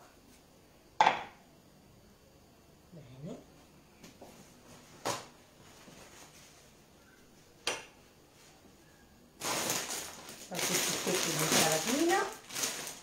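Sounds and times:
sharp kitchen knocks: 1.0s - 1.3s.

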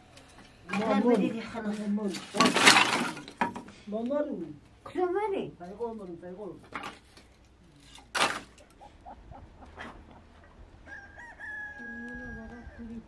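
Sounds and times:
rooster crowing: 10.8s - 13.0s.

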